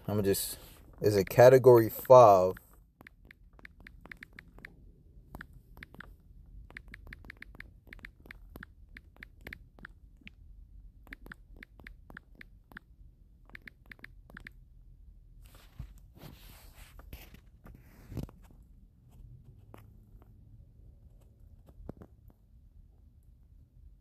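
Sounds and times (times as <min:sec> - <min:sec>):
taps on smartphone keyboard: 0:03.0 - 0:04.7, 0:05.3 - 0:06.1, 0:06.7 - 0:10.4.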